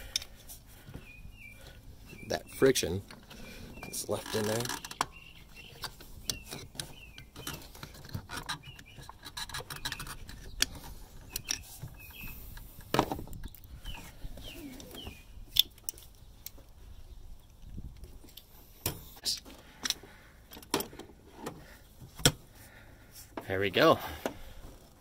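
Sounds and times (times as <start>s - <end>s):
birds chirping: 0.0s - 24.6s
screwdriver clicking and scraping: 5.7s - 11.7s.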